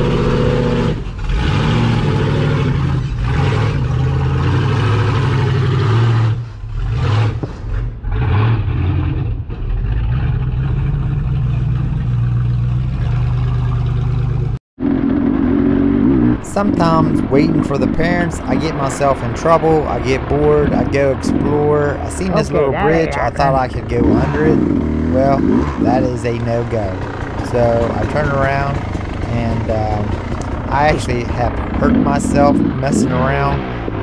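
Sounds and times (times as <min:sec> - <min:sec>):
engine running and revving: 0:00.0 - 0:34.0.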